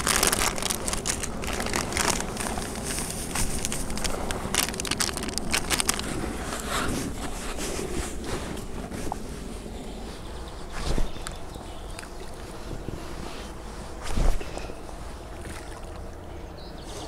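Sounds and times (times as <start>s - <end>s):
plastic packet crinkling: 0.0s - 7.4s
bait mixed by hand: 0.0s - 9.7s
wind rumble on microphone: 0.0s - 16.2s.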